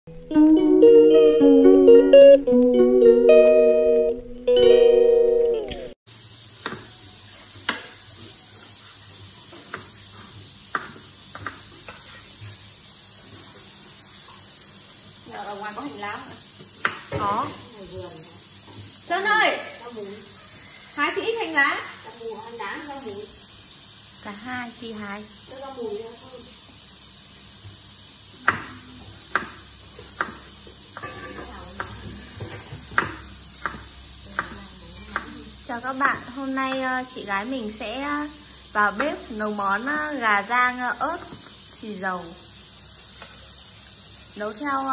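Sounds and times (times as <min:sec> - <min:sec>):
guitar music: 0:00.1 - 0:06.0
background hiss: 0:00.1 - 0:44.9
sizzling oil in wok: 0:05.9 - 0:44.9
knife chopping on wooden board: 0:30.2 - 0:30.4, 0:31.8 - 0:35.3.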